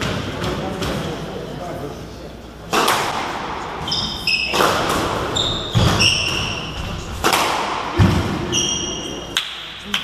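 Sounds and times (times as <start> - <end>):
squash ball cracks: 2.7 - 3.5, 4.5 - 8.5, 9.3 - 10.0
shoes squeaking on wooden floor: 3.8 - 7.0.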